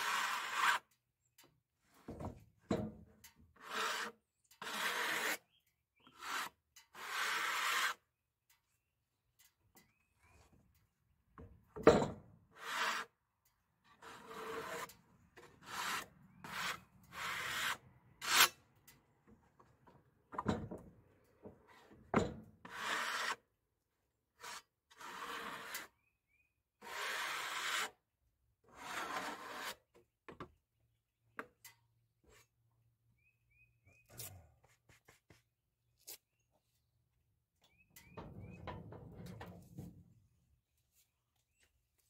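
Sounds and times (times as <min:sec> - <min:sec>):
hand tool scraping wood: 0:00.0 - 0:00.9, 0:03.5 - 0:08.0, 0:12.5 - 0:13.2, 0:13.8 - 0:18.6, 0:21.6 - 0:23.5, 0:24.4 - 0:26.0, 0:26.8 - 0:28.0, 0:28.7 - 0:30.0.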